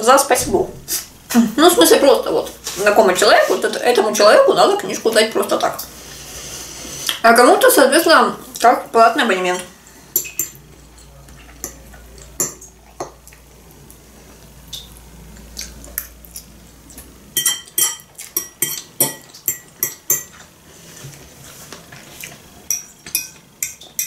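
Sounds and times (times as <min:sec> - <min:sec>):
cutlery clinking on ceramic: 0:17.4 - 0:20.4, 0:22.7 - 0:24.0.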